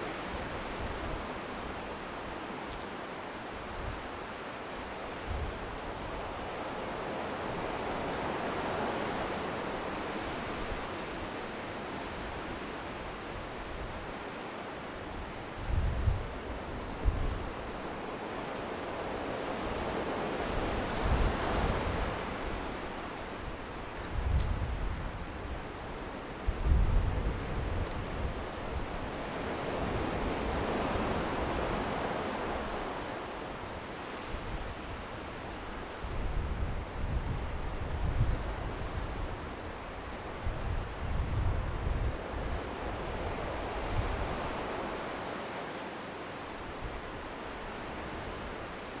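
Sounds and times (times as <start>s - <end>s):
ocean surf rushing: 0.0s - 49.0s
wind buffeting microphone: 15.1s - 17.8s, 19.7s - 45.1s.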